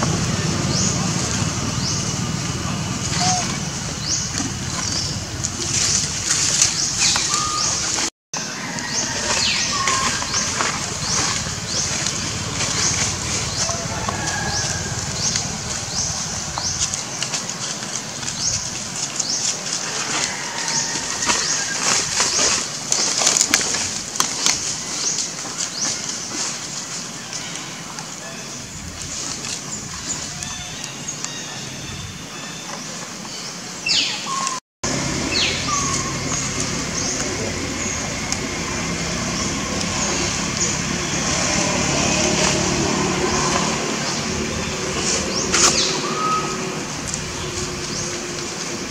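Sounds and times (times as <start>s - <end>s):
low hum: 0.0s - 8.1s, 8.8s - 19.1s, 34.8s - 48.9s.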